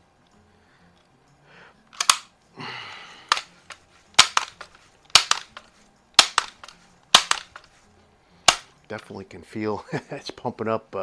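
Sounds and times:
air rifle pump lever clacking: 2.0 - 2.3, 3.3 - 7.7, 8.5 - 8.7.

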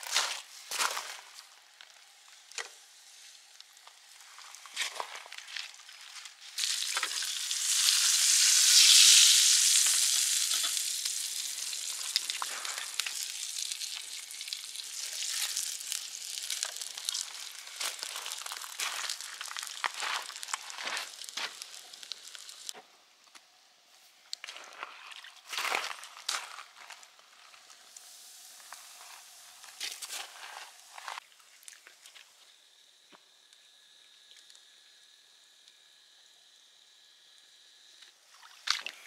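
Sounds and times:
fish sizzling in hot oil: 5.7 - 22.8, 27.6 - 31.2.

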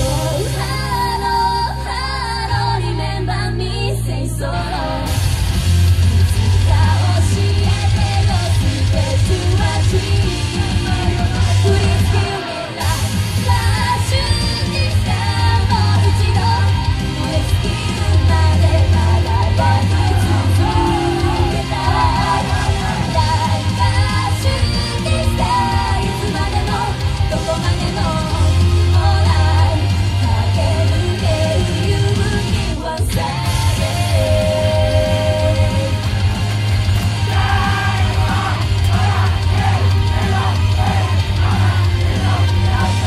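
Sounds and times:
woman singing into microphone: 0.0 - 5.2, 6.2 - 36.2
heavy bass line: 0.0 - 43.0
live rock pop song: 0.0 - 43.0
shouts: 37.0 - 43.0.

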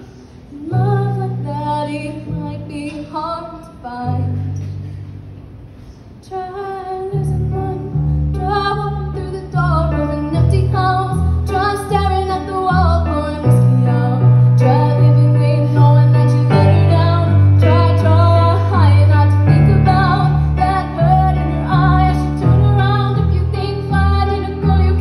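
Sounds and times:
woman singing: 0.5 - 4.7, 6.2 - 25.0
keyboard sustained chords: 7.3 - 25.0.

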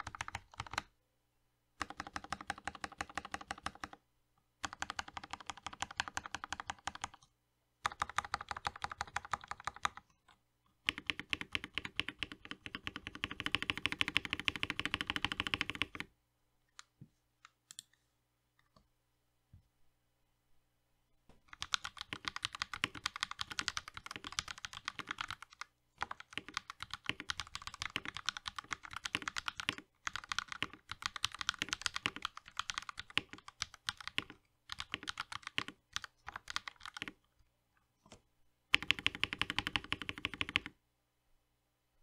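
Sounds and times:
mechanical keyboard typing: 0.0 - 0.9, 1.8 - 4.0, 4.6 - 7.2, 7.8 - 10.1, 10.8 - 16.1, 21.5 - 37.2, 38.7 - 40.8.

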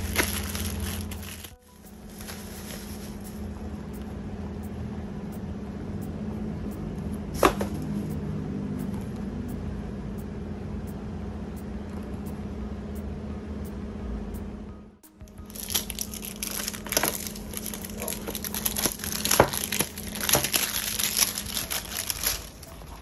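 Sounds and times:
plastic wrapping handled: 0.0 - 3.5, 15.4 - 23.0
steady low hum: 0.0 - 23.0.

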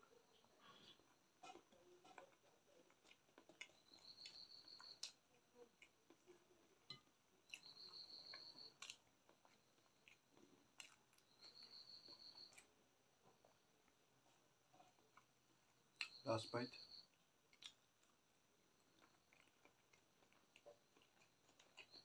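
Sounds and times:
fingers mixing rice: 0.0 - 15.4
chewing: 0.0 - 16.2, 17.0 - 22.0.

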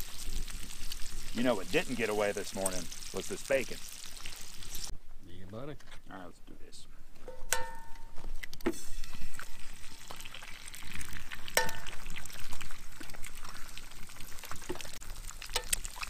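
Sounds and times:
frying sizzle: 0.0 - 4.9, 8.7 - 16.0
egg tapped on pan rim: 11.6 - 11.9.

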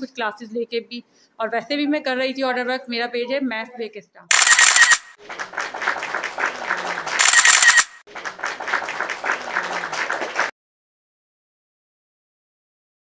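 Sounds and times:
short burst of noise: 4.3 - 5.2, 7.2 - 8.0
group clapping: 4.7 - 10.6.

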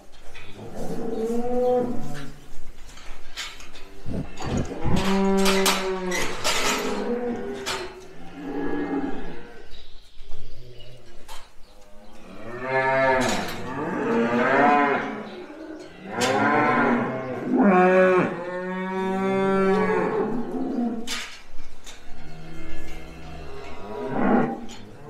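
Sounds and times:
cows mooing: 3.7 - 9.7, 12.2 - 21.2, 21.9 - 25.0.

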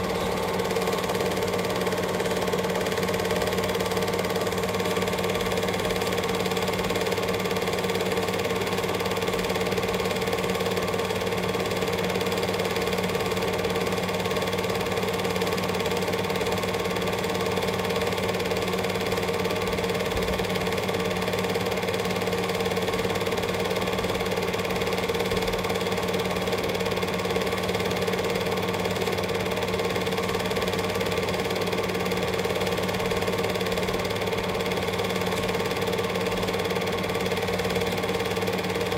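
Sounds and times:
motor hum: 0.0 - 6.8
film projector clatter: 0.0 - 38.9.

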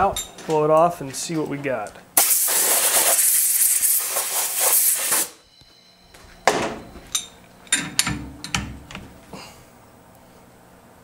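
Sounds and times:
metal clinks and knocks: 0.0 - 2.0, 5.7 - 9.2
compressed air gun hissing: 2.2 - 5.4.

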